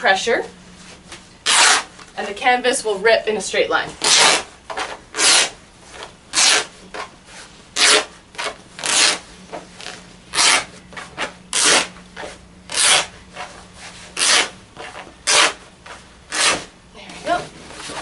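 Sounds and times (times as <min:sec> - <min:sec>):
canvas being ripped by hand: 0:01.4 - 0:01.9, 0:04.0 - 0:05.6, 0:06.3 - 0:06.7, 0:07.8 - 0:12.0, 0:12.7 - 0:13.5, 0:14.2 - 0:15.6, 0:16.3 - 0:16.7.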